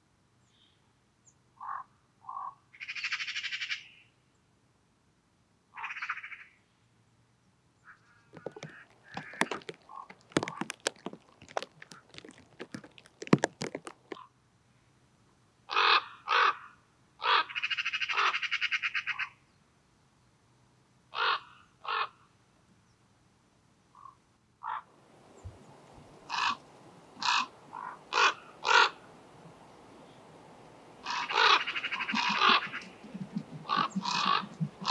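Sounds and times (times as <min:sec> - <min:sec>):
ravens cawing: 0:08.4 - 0:13.9, 0:26.2 - 0:29.3, 0:30.9 - 0:34.9
raven rattling call: 0:08.4 - 0:14.2, 0:21.2 - 0:22.1, 0:24.0 - 0:34.9
sharp clicks and knocks: 0:08.4 - 0:14.2.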